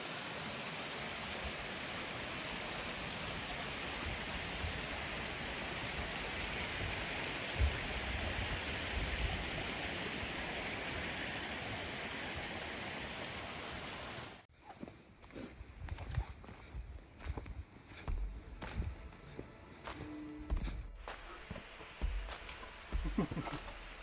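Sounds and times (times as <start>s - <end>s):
stream water rushing: 0.0s - 14.5s, 19.8s - 24.0s.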